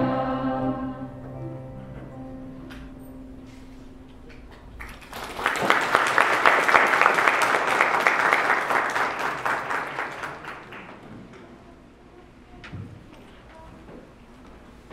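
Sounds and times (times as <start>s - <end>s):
audience applauding: 4.3s - 11.1s.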